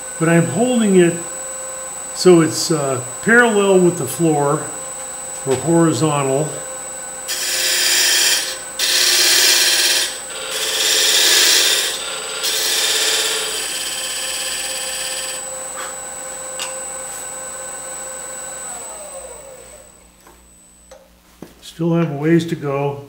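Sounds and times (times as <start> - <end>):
lathe motor humming: 0.0 - 20.3
lathe tool scraping wood: 2.1 - 17.6.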